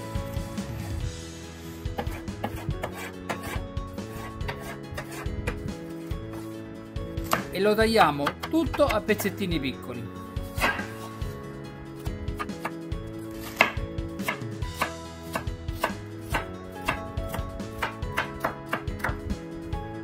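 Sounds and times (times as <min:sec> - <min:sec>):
knife chopping on wooden board: 0:02.0 - 0:05.7, 0:07.2 - 0:07.5, 0:08.2 - 0:09.2, 0:10.5 - 0:11.1, 0:12.0 - 0:12.8, 0:13.4 - 0:19.2.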